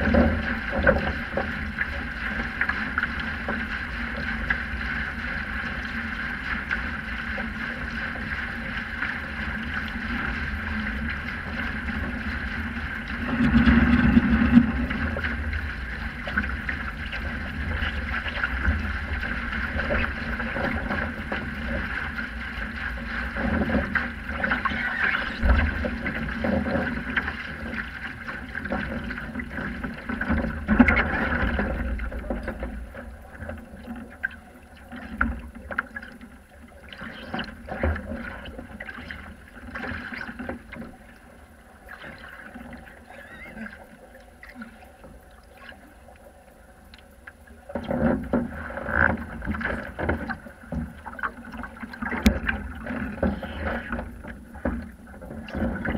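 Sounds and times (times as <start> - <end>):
wind noise on microphone: 0.0 - 32.9
water rushing along boat hull: 0.0 - 55.9.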